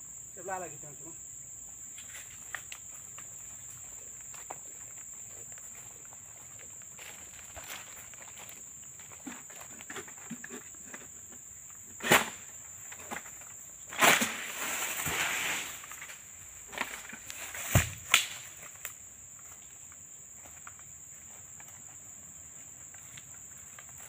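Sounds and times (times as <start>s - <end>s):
high insect whine: 0.0s - 24.0s
sharp crack: 13.9s - 16.2s, 17.6s - 19.0s
heavy thuds of fronds landing: 13.9s - 18.4s
fronds crashing through leaves: 13.9s - 18.9s.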